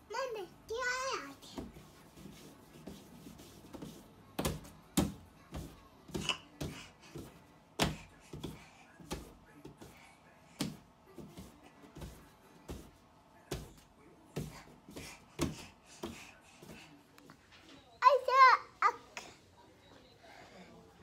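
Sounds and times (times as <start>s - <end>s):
toddler slapping palms on wall: 1.3s - 10.0s, 10.6s - 16.9s.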